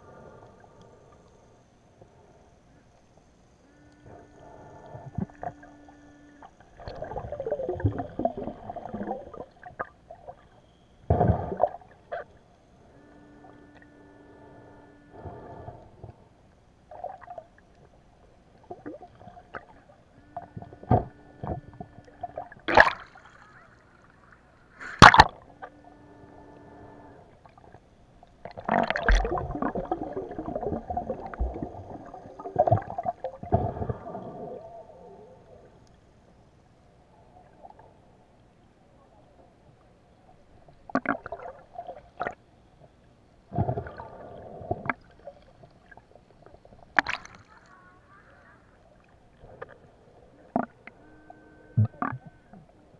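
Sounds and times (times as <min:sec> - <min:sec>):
faint steady hum: 0:00.0 - 0:52.9
muffled underwater gurgling: 0:03.7 - 0:16.3, 0:18.6 - 0:27.8, 0:28.4 - 0:35.8, 0:47.0 - 0:52.9
churning water: 0:22.2 - 0:23.9, 0:28.4 - 0:33.9
sharp knocks underwater: 0:24.9 - 0:25.4.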